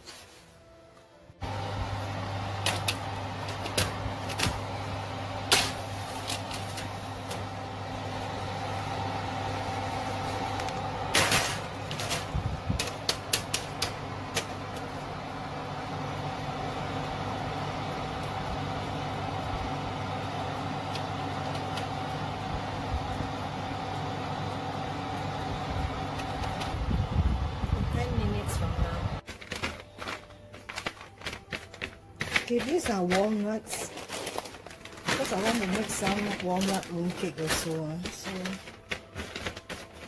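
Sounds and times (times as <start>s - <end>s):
oven humming: 0.0s - 40.0s
baking trays clinking on racks: 29.6s - 40.0s.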